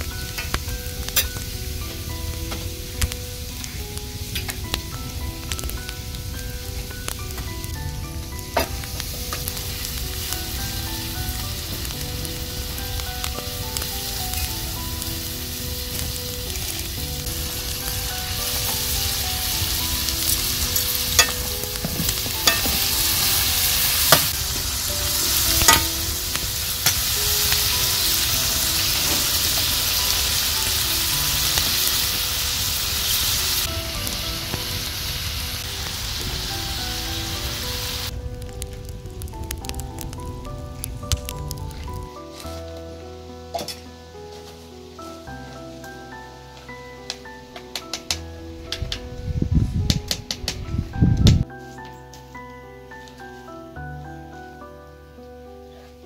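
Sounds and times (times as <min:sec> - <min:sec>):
food sizzling in metal pan: 0:00.0 - 0:42.6.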